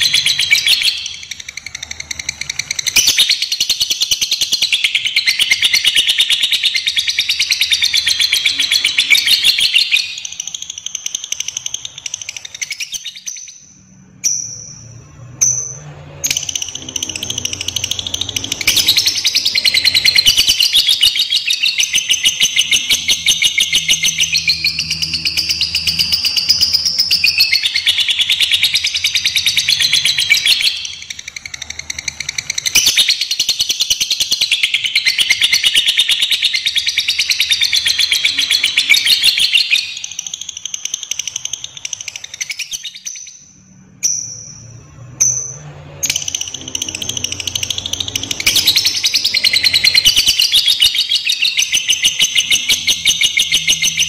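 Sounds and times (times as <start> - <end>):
lovebird chattering trill: 46.0 - 54.0.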